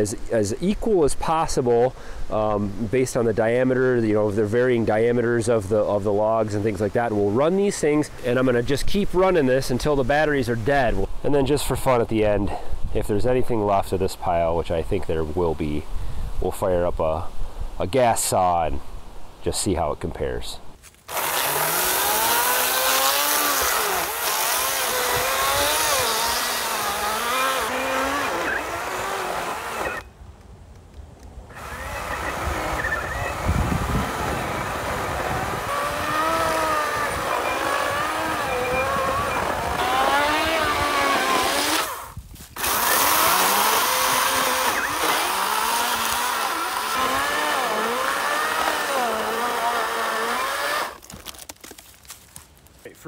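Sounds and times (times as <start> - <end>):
chainsaw cutting log: 21.0 - 30.1, 31.5 - 52.0.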